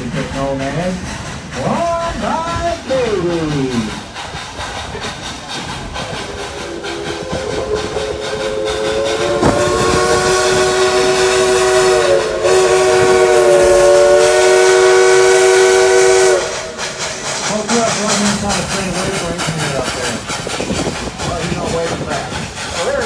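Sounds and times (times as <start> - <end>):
train running noise: 0.0 - 23.0
steam locomotive whistle: 6.5 - 17.6.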